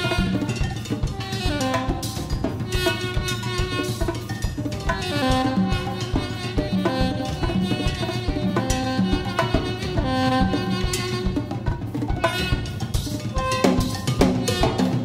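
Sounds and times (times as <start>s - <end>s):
drum kit: 0.0s - 15.0s
hand percussion: 0.0s - 15.0s
saxophone playing jazz: 0.0s - 15.0s.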